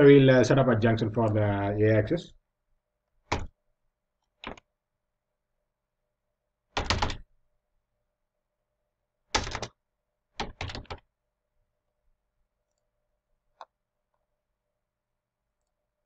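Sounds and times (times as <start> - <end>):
keyboard typing: 3.3 - 3.5, 4.4 - 4.6, 6.8 - 7.3, 9.3 - 9.8, 10.4 - 11.0.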